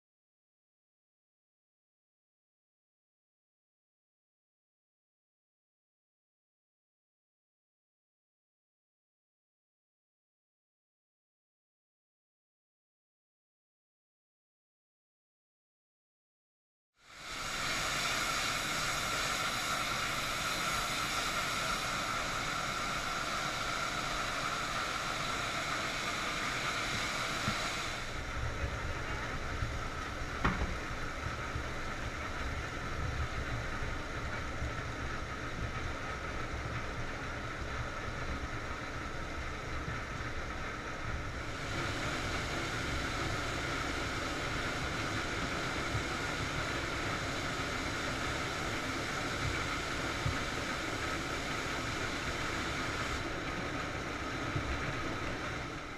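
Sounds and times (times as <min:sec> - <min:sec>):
machine hum with high whine: 0:17.0 - 0:55.9.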